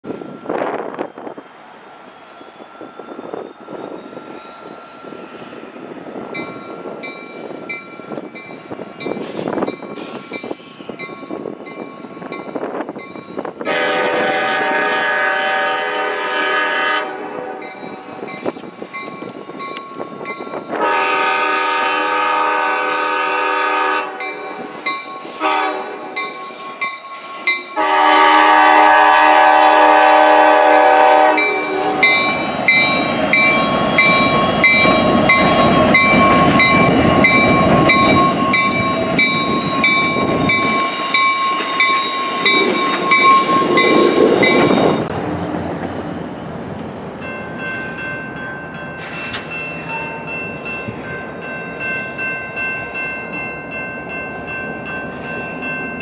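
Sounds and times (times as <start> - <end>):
crossing bell dinging: 2.2 - 14.0, 17.0 - 22.2, 23.6 - 45.1, 47.2 - 56.0
locomotive horn blasts: 13.7 - 17.7, 20.7 - 24.6, 25.3 - 26.2, 27.8 - 32.2.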